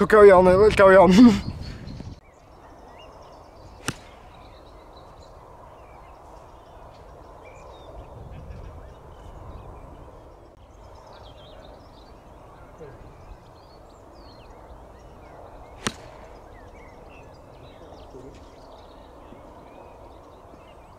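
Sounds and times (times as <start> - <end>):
birds chirping: 0.0 - 20.9
outdoor background: 0.0 - 20.9
golf club striking ball: 3.8 - 4.4, 15.7 - 16.6.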